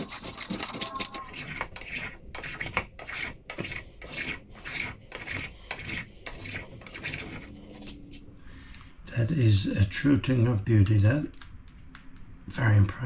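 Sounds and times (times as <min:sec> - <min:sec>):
hand plane shaving wood: 0:00.0 - 0:08.0.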